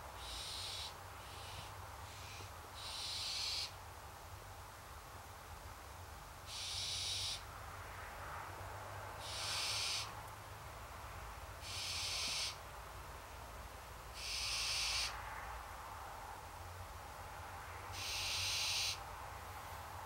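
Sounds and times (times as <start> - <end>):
owl hissing calls: 0.2 - 3.8, 6.5 - 7.4, 9.2 - 10.2, 11.6 - 12.6, 14.2 - 15.2, 17.9 - 19.0.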